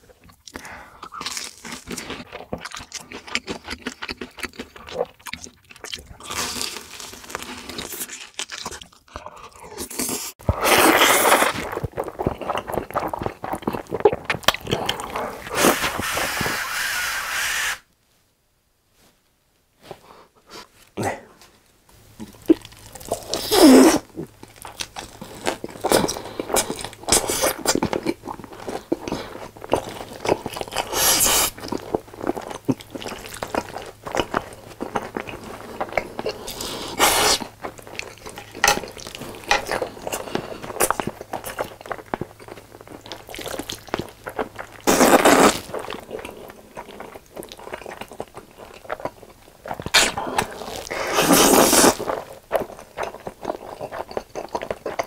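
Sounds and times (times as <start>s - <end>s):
wet chewing and crunching: 0.0s - 16.4s, 22.2s - 55.0s
slurping noodles: 9.8s - 17.8s, 23.0s - 24.1s, 35.4s - 37.5s, 44.8s - 46.0s, 49.9s - 52.3s.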